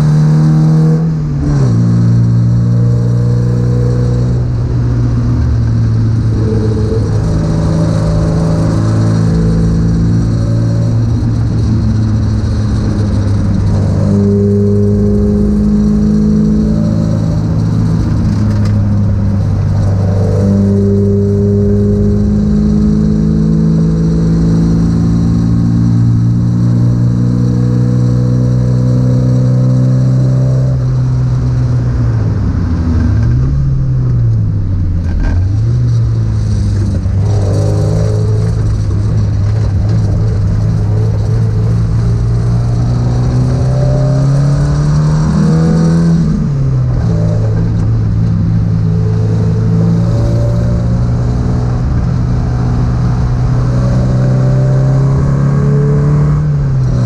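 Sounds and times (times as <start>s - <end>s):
car engine running hard: 0.0s - 57.0s.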